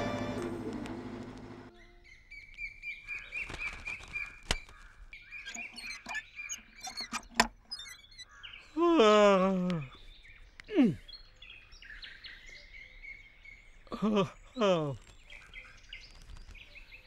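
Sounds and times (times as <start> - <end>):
background music: 0.0 - 1.6
pulsing call: 0.0 - 1.7
birds calling: 0.0 - 17.0
sharp clicks: 5.5 - 8.2.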